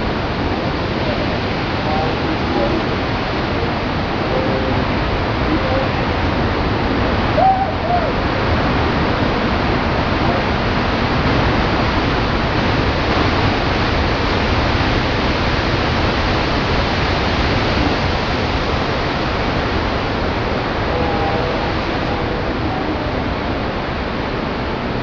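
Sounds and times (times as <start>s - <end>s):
surf breaking roar: 0.0s - 25.0s
person hooting cry: 7.3s - 8.2s.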